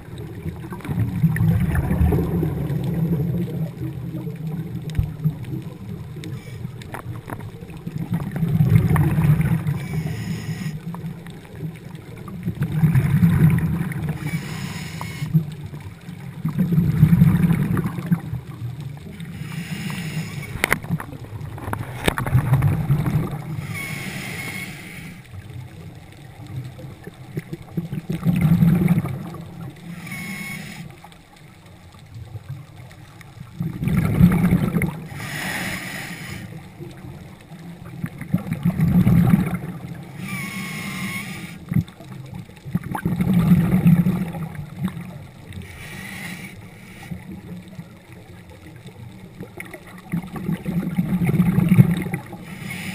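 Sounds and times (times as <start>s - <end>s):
bubbling exhale underwater: 0.0s - 6.4s, 7.0s - 11.1s, 12.1s - 24.2s, 26.3s - 30.4s, 33.4s - 45.7s, 49.4s - 52.9s
regulator hissing inhale: 9.7s - 10.8s, 14.2s - 15.4s, 19.2s - 20.6s, 23.6s - 25.2s, 29.9s - 31.0s, 35.1s - 36.6s, 40.2s - 41.7s, 45.6s - 47.3s, 52.4s - 52.9s.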